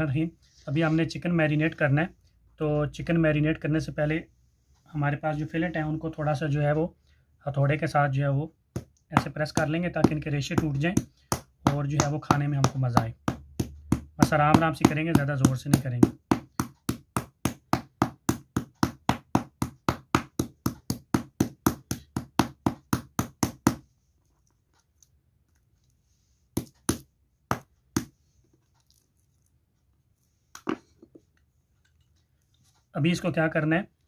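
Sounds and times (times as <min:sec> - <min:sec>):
meat mallet pounding on board: 0:08.7 - 0:23.8, 0:26.6 - 0:28.1.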